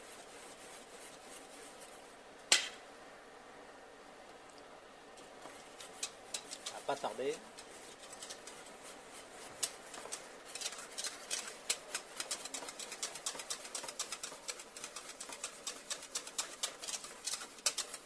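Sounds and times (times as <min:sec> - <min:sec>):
whisk ticking against metal bowl: 0:05.4 - 0:18.0.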